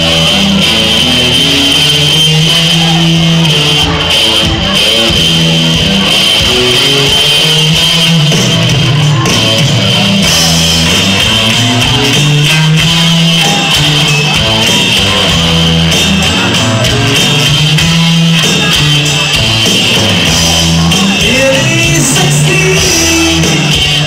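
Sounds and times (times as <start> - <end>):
live band playing: 0.0 - 24.0.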